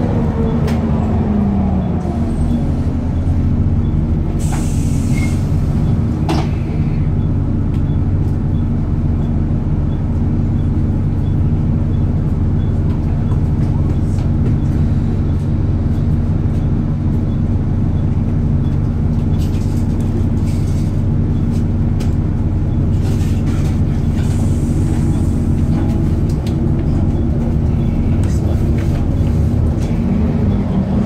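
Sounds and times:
bus diesel engine idling: 0:00.0 - 0:31.0.

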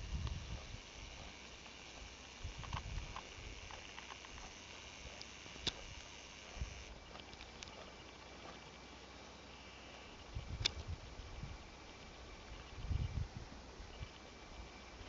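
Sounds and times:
bear chewing grass: 0:00.0 - 0:08.8
sharp click: 0:02.6 - 0:06.6.

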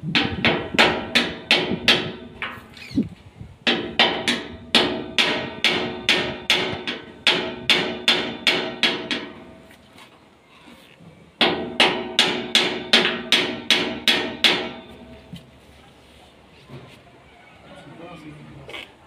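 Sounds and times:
hammer blows on metal: 0:00.0 - 0:02.7, 0:03.6 - 0:09.6.

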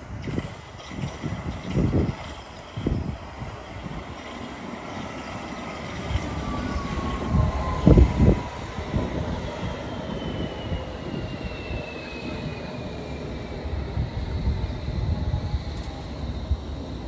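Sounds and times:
train rumble and wheel noise: 0:00.0 - 0:17.0
train whine falling in pitch: 0:05.6 - 0:17.0.

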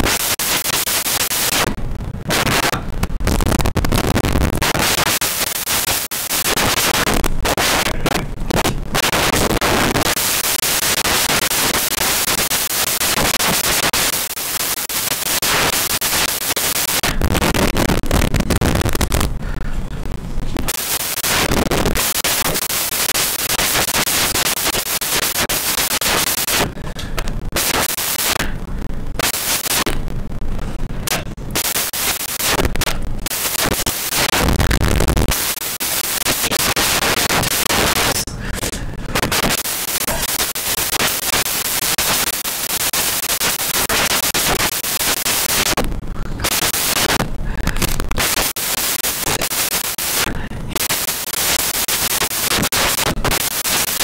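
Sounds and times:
harsh static noise with crackling: 0:00.0 - 0:54.0.

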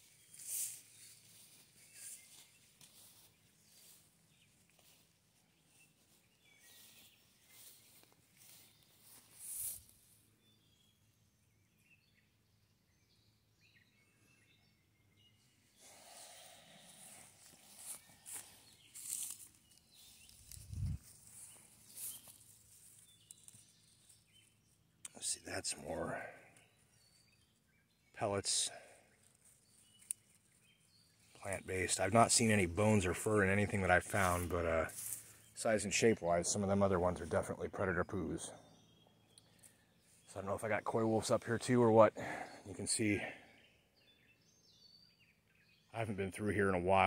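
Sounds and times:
faint soft rustling: 0:00.0 - 0:10.3, 0:15.9 - 0:24.6, 0:34.1 - 0:35.6.

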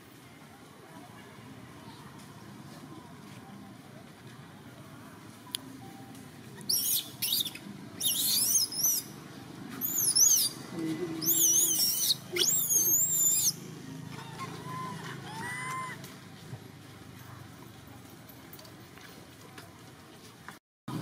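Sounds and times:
baby monkey screaming: 0:06.7 - 0:09.0, 0:09.8 - 0:10.5, 0:11.2 - 0:13.6, 0:14.2 - 0:16.0
low rising calls: 0:06.7 - 0:09.2, 0:09.8 - 0:16.0.

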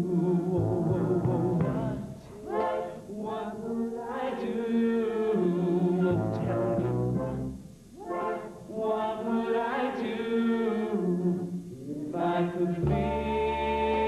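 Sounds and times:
backing singers harmonizing: 0:00.0 - 0:14.0
bass line: 0:00.6 - 0:02.1, 0:06.1 - 0:07.7.

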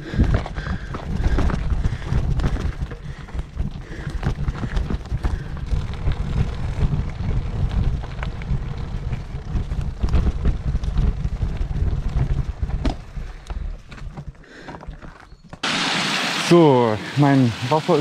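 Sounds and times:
wind buffeting microphone: 0:00.0 - 0:14.1
stones crackling under tyres: 0:00.0 - 0:15.8
bicycle rolling over gravel: 0:00.0 - 0:18.0.

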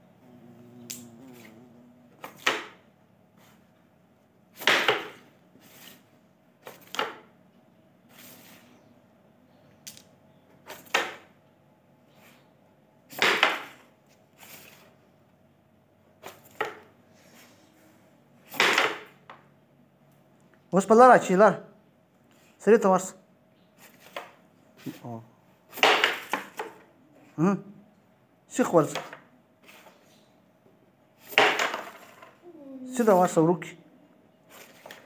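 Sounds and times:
carrom pieces clacking on wood: 0:31.3 - 0:32.4.

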